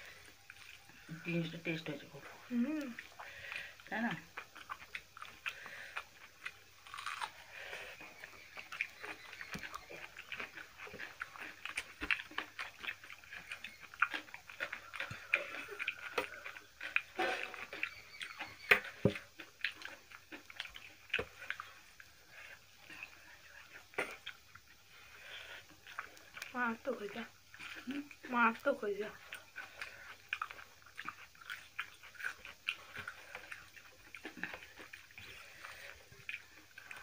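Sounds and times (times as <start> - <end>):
people chewing and lip-smacking: 0.0 - 37.0.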